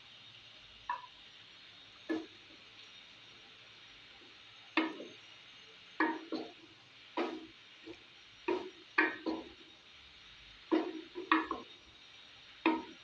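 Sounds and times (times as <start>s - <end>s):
faint steady hiss: 0.0s - 13.0s
spatula knocking against pot: 6.0s - 6.5s, 8.5s - 9.5s, 10.7s - 11.7s, 12.7s - 13.0s.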